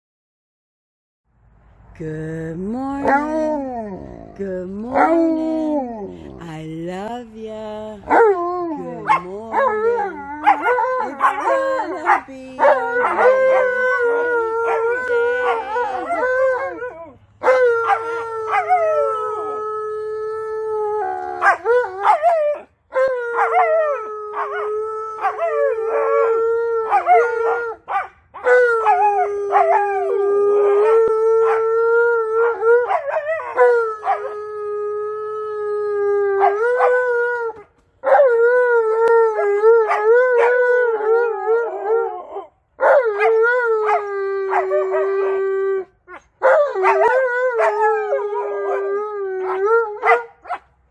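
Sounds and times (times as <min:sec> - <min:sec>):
dogs howling: 0:08.1 - 0:19.7, 0:20.5 - 0:34.9, 0:36.0 - 0:50.6.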